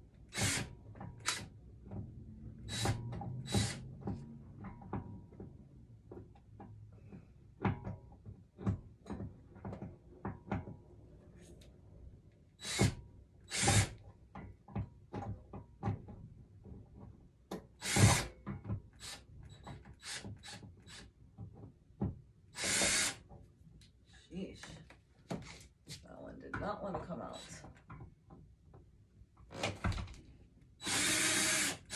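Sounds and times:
cordless drill: 0:00.3 - 0:01.5, 0:02.7 - 0:03.8, 0:12.6 - 0:14.0, 0:17.8 - 0:18.3, 0:19.0 - 0:19.2, 0:20.0 - 0:21.1, 0:22.6 - 0:23.2, 0:30.8 - 0:31.9.

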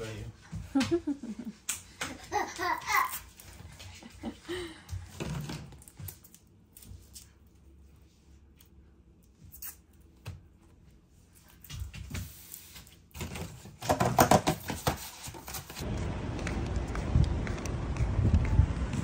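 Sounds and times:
steady rushing noise: 0:15.8 - 0:19.0.

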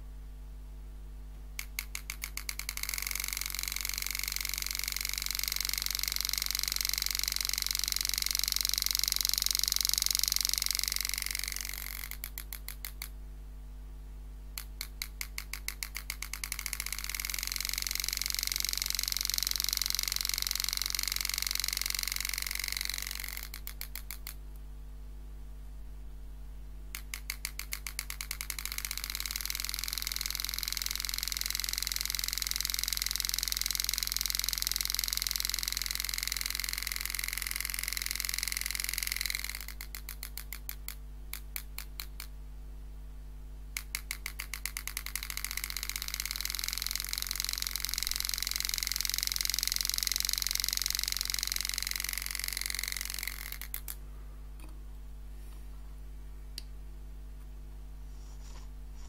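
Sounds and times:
steady low hum: 0:00.0 - 0:59.0
graver clicking and buzzing: 0:01.6 - 0:13.1, 0:14.6 - 0:24.4, 0:26.9 - 0:42.3, 0:43.8 - 0:54.0.

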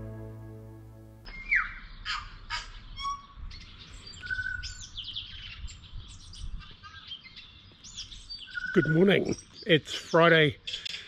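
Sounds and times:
bird singing whistled notes: 0:01.3 - 0:02.1, 0:02.9 - 0:09.7.

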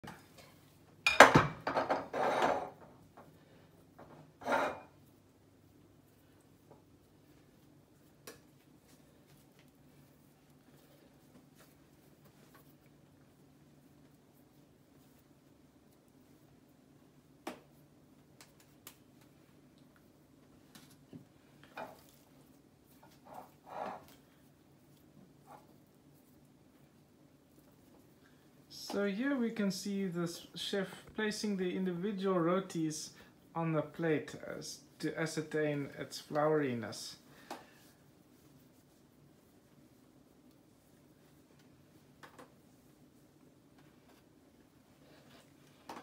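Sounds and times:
kneading dough in bowl: 0:01.8 - 0:46.0
faint clicks and taps: 0:17.4 - 0:22.2, 0:41.5 - 0:42.6.

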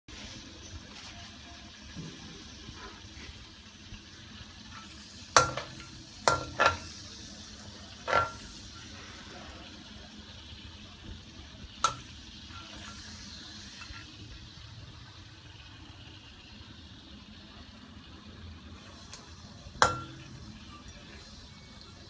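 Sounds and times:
chicken sizzling in hot oil: 0:00.1 - 0:22.0
spatula knocking on pan: 0:04.8 - 0:06.9, 0:11.8 - 0:13.0, 0:19.8 - 0:20.4.

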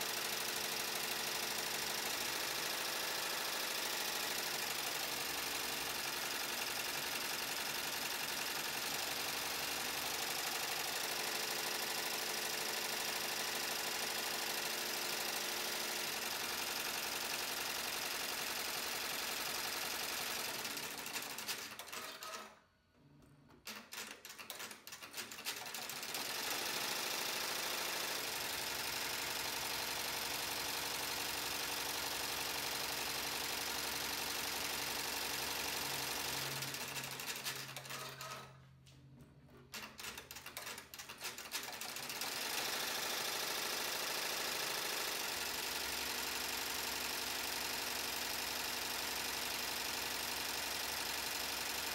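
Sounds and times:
embroidery machine needle clatter: 0:00.1 - 0:22.6, 0:23.6 - 0:38.5, 0:39.7 - 0:51.9
machine clicks: 0:23.6 - 0:25.8, 0:39.7 - 0:43.3.

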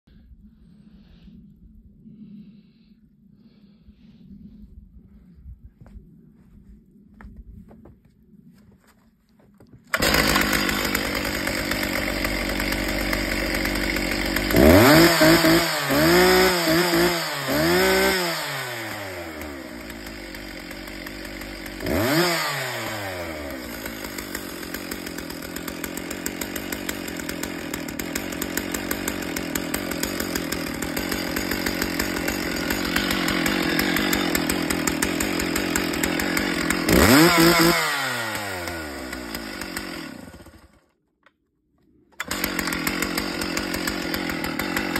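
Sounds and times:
chainsaw engine revving: 0:09.9 - 0:40.8, 0:42.2 - 0:44.9.

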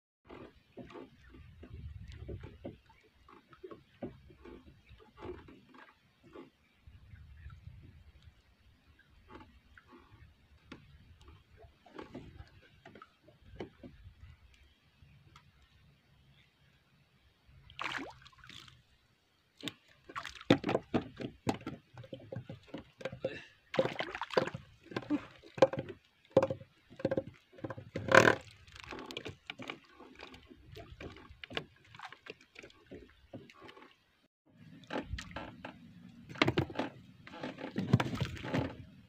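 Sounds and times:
water sloshing: 0:00.3 - 0:16.4, 0:17.4 - 0:39.0
knocks on wooden hull: 0:20.4 - 0:28.4.

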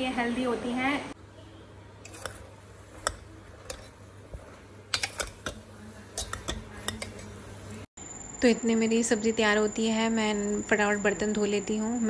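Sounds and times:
metal ladle scraping pressure cooker: 0:02.0 - 0:07.4.

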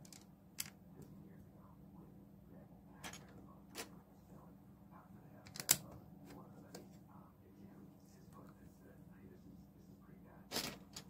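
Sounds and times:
plastic pieces clicking together: 0:00.0 - 0:00.7
low steady hum: 0:00.0 - 0:11.0.

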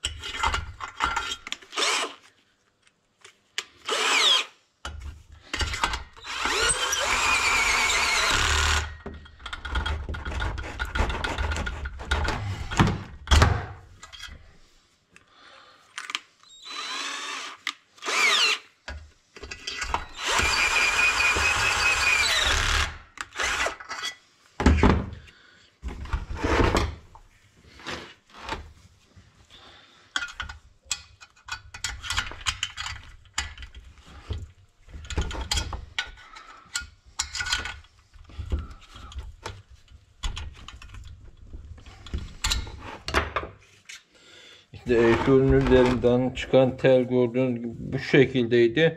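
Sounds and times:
cordless drill driving bolts: 0:01.2 - 0:02.2, 0:03.8 - 0:04.5, 0:05.6 - 0:09.1, 0:16.4 - 0:18.7, 0:19.7 - 0:23.9
tool whirrs and knocks: 0:05.6 - 0:13.0, 0:16.6 - 0:23.9.

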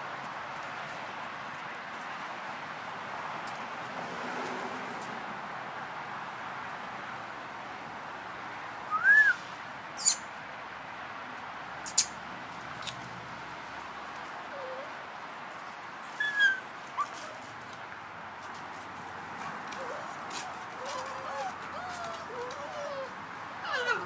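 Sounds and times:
puppies yipping: 0:14.5 - 0:17.5, 0:19.4 - 0:24.0.

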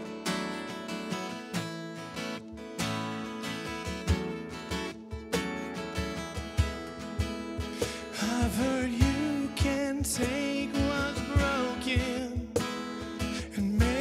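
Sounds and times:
strummed acoustic guitar: 0:00.0 - 0:14.0
person singing: 0:07.8 - 0:14.0.

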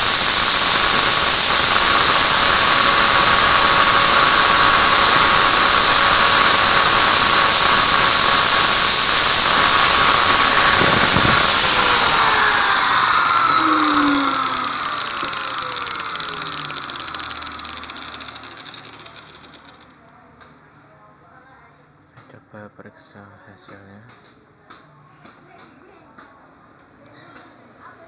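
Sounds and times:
angle grinder whining and winding down: 0:00.0 - 0:19.9.

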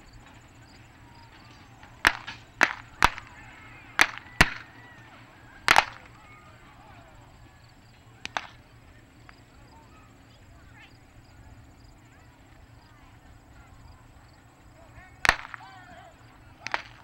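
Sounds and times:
gunshot cracks: 0:02.0 - 0:03.3, 0:04.0 - 0:04.7, 0:05.7 - 0:06.1, 0:08.2 - 0:08.6, 0:15.2 - 0:15.8, 0:16.6 - 0:17.0.

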